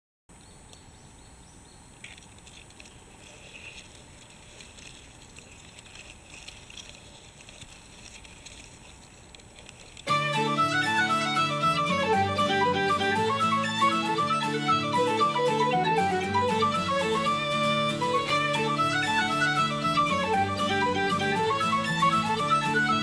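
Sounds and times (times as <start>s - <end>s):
light rustles: 1.9s - 10.1s
loud music: 10.1s - 23.0s.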